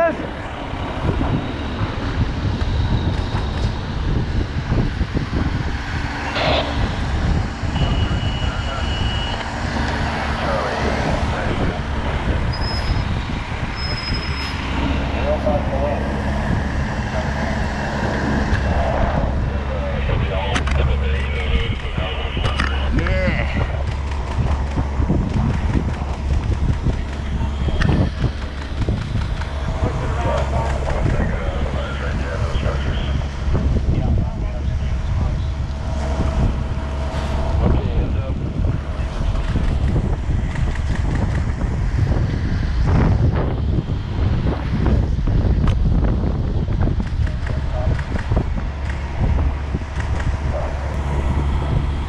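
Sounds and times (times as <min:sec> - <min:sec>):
fire engine low rumble: 0:00.0 - 0:52.0
fire crackling and popping: 0:20.5 - 0:31.2, 0:38.7 - 0:42.0, 0:46.7 - 0:52.0.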